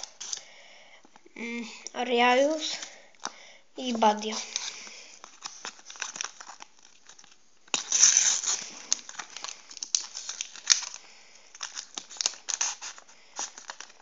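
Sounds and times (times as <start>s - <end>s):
foil packet tearing: 0.0s - 0.5s, 4.0s - 14.0s
foil crackling and rustling: 3.8s - 14.0s.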